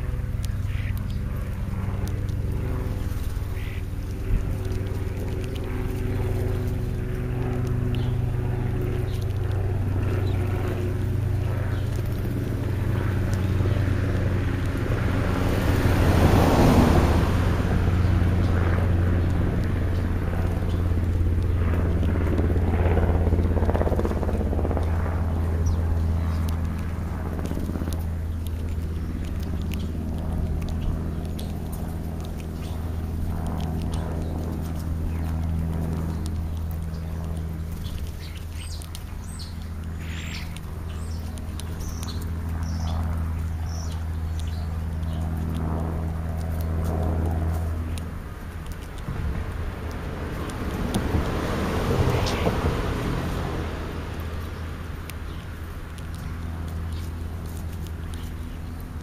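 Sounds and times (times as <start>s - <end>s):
faint ticks and rustles: 0.0s - 16.8s, 17.4s - 59.0s
steady low hum: 0.0s - 59.0s
car passing on street: 12.2s - 21.5s, 44.8s - 57.8s.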